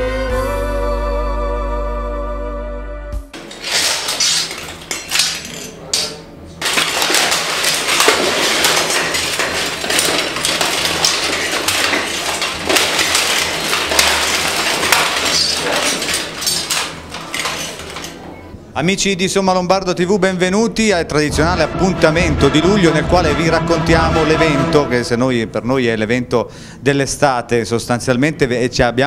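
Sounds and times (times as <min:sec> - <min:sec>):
plate armour clanking: 0:03.4 - 0:18.5.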